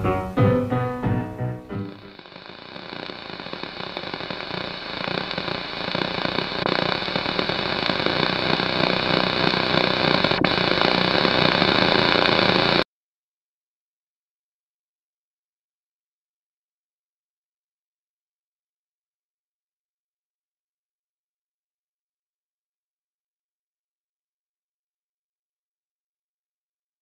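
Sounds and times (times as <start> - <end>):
harsh crackling static: 0.0 - 12.8.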